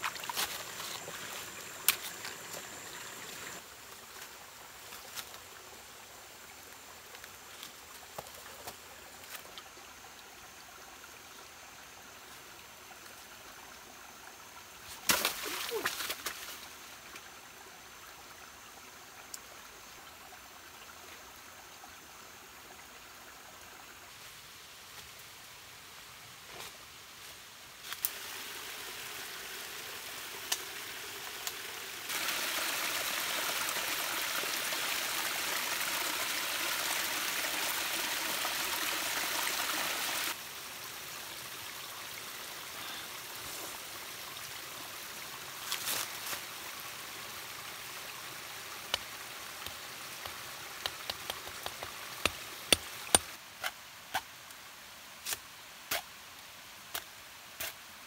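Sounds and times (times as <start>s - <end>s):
quiet stream: 0.0s - 58.0s
waterfall splashing: 32.1s - 40.4s.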